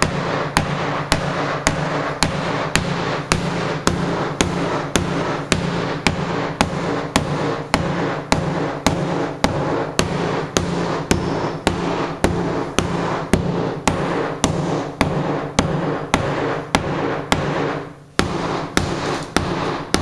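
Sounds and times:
steady hum: 0.0s - 20.0s.

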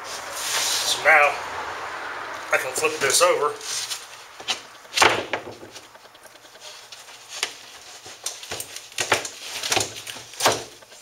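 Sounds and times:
board knocking on wood: 4.5s - 5.8s.

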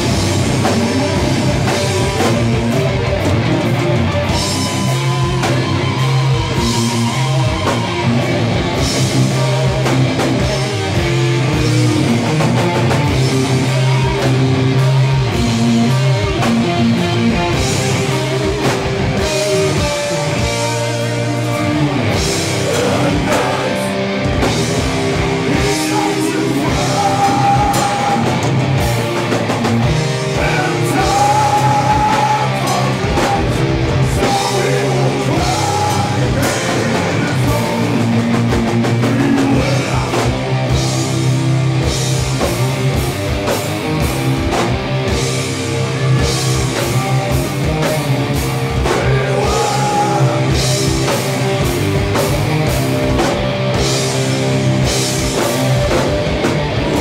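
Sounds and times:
bass guitar: 0.0s - 57.0s
distorted electric guitars: 0.0s - 57.0s
drum kit hits: 22.0s - 57.0s.

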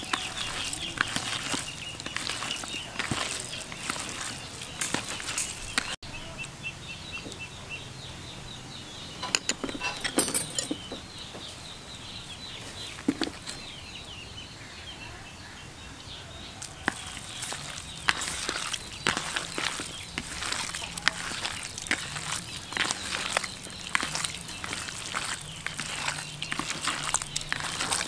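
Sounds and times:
hands squishing raw meat: 0.0s - 6.0s, 16.6s - 28.0s.

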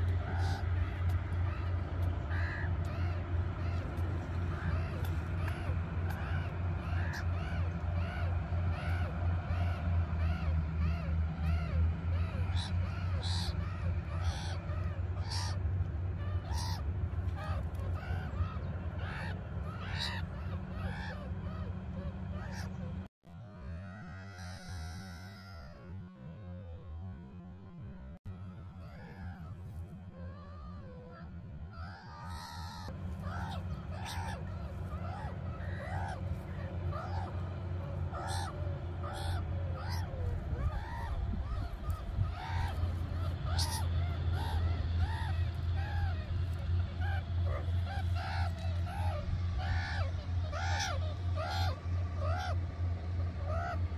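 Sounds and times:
meerkats calling: 0.0s - 26.0s, 28.6s - 53.9s
steady low hum: 0.0s - 53.9s
steady low rumble: 0.0s - 53.9s.

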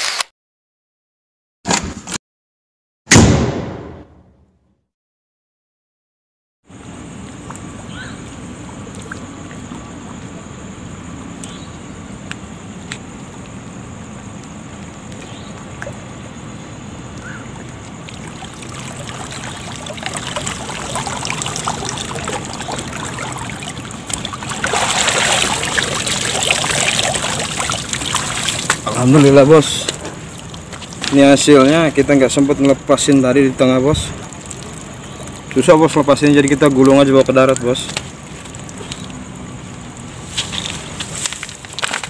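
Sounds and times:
water sloshing and splashing: 17.1s - 42.0s.

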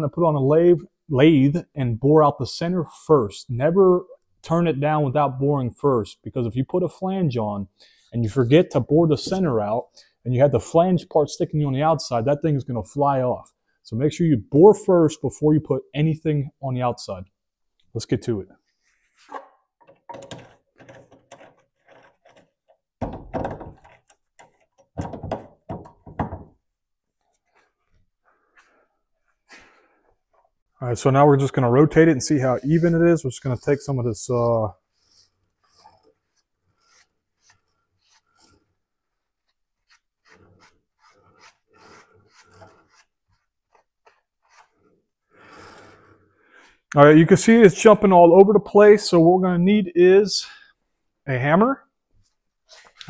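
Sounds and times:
rag rubbing on steel bar: 32.2s - 44.9s.

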